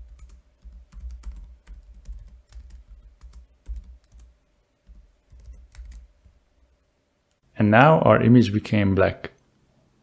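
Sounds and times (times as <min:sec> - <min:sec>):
computer keyboard typing: 0:00.0 - 0:06.4.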